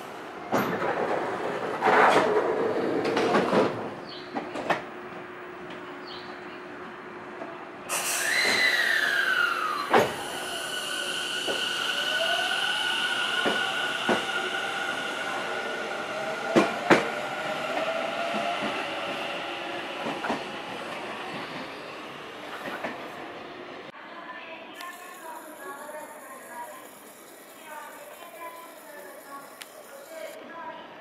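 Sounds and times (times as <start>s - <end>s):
electric train motors whining: 8.0s - 19.2s, 24.8s - 30.4s.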